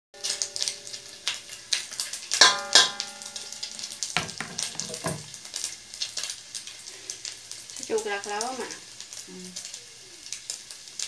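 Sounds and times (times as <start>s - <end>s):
pork sizzling in hot oil: 0.1s - 11.0s
metallic clanks: 2.3s - 5.3s.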